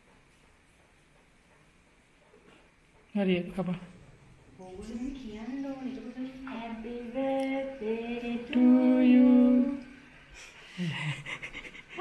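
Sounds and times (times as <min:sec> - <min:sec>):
person singing unaccompanied: 0:04.8 - 0:10.0
person chuckling softly: 0:10.4 - 0:12.0.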